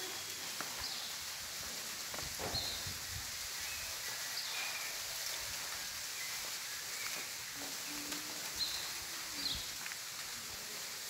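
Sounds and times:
steady outdoor hiss: 0.0 - 11.0.

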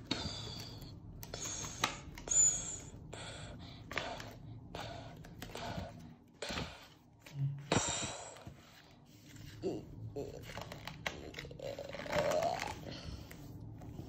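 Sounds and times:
person making breathy vocal sounds: 9.5 - 10.8.

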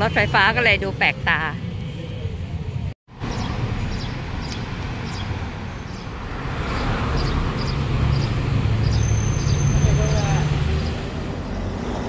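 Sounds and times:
street traffic rumble: 0.0 - 12.0
motor vehicle approaching: 3.2 - 12.0.

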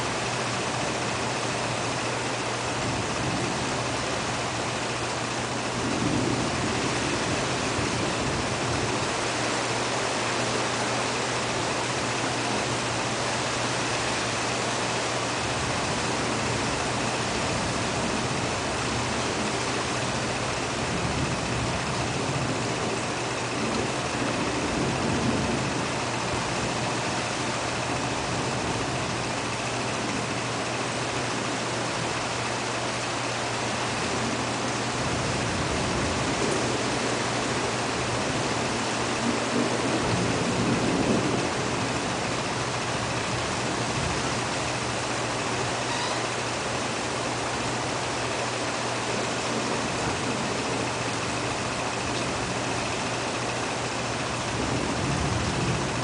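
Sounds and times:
heavy rain falling: 0.0 - 56.0.

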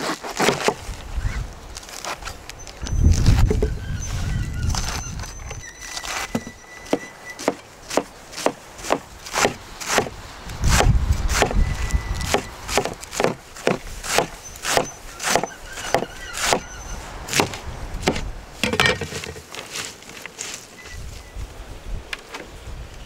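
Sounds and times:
cleaver chopping lettuce on board: 0.0 - 0.8, 6.4 - 11.6, 12.2 - 16.6.

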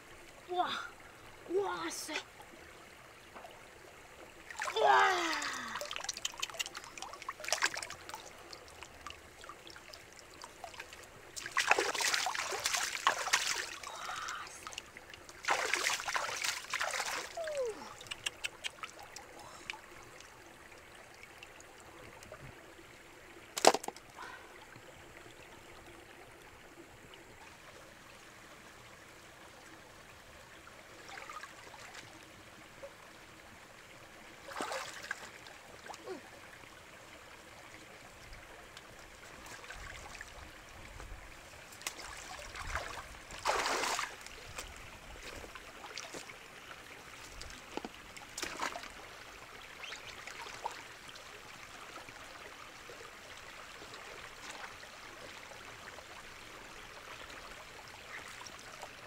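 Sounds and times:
stream trickling: 0.0 - 59.0
water splashing: 4.5 - 8.3, 10.6 - 19.8, 34.4 - 36.2, 41.7 - 46.4, 47.2 - 49.1.

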